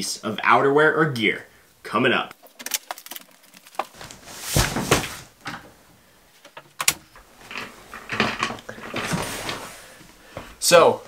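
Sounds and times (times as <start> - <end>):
rustling and shuffling: 2.4 - 11.0
cardboard scraping: 3.4 - 5.3
boxes thumping onto couch: 3.9 - 5.4.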